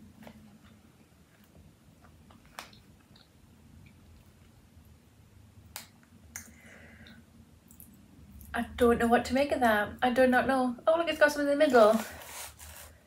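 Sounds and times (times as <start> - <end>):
soft rustle: 11.6 - 13.0.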